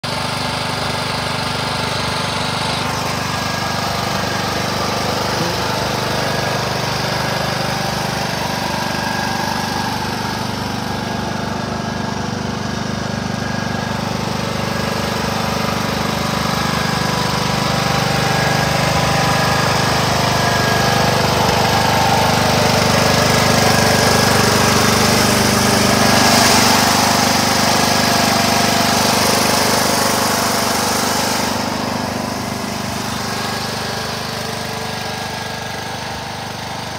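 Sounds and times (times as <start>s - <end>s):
lawn tractor engine running: 0.0s - 36.9s.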